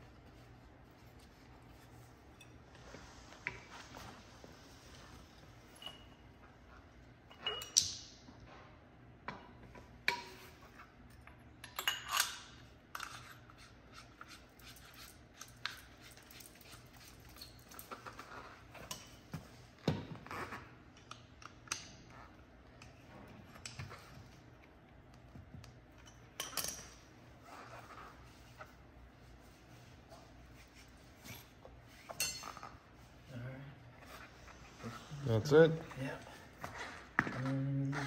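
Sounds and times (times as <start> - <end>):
metal tools clinking on concrete: 5.7 - 6.2, 7.3 - 7.9, 11.6 - 13.7, 26.0 - 27.1, 31.2 - 32.8.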